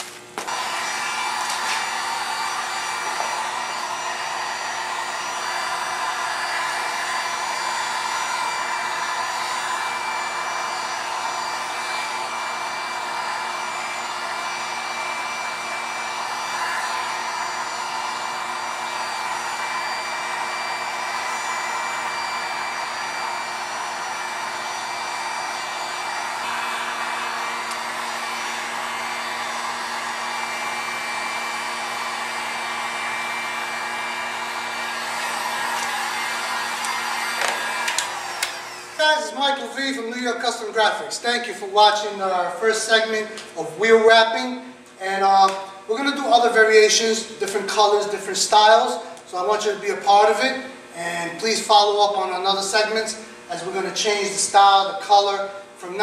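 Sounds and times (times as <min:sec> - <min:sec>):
heat gun blowing: 0:00.0 - 0:43.6.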